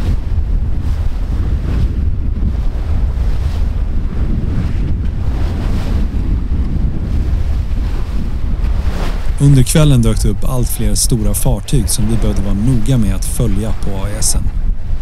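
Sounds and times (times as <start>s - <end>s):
sea rushing: 0.0s - 15.0s
wind buffeting microphone: 0.0s - 15.0s.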